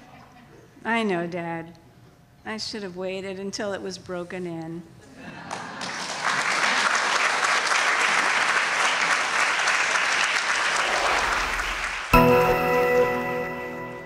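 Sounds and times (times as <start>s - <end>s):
audience applauding: 5.5s - 12.6s
music with sustained chord: 11.0s - 14.0s.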